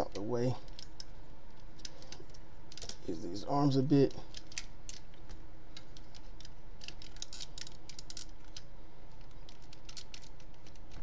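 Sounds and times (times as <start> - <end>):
plastic toy parts clicking: 0.6 - 3.0, 4.3 - 11.0.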